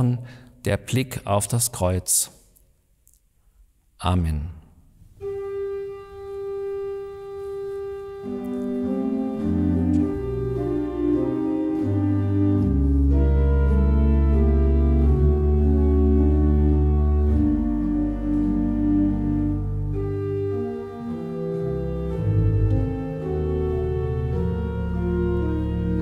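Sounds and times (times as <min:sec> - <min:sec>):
church pipe organ chords: 0:05.2 - 0:26.0
deep organ bass notes: 0:05.2 - 0:26.0.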